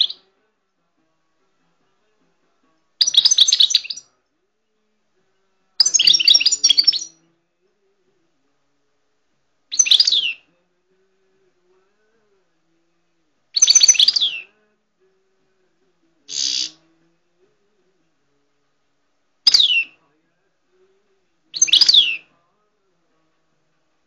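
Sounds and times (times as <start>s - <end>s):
finch twittering song: 0.0s - 0.3s, 3.0s - 4.1s, 5.8s - 7.2s, 9.7s - 10.5s, 13.5s - 14.6s, 16.3s - 17.0s, 19.5s - 20.0s, 21.5s - 22.4s
harsh buzzy bird note: 16.3s - 16.8s.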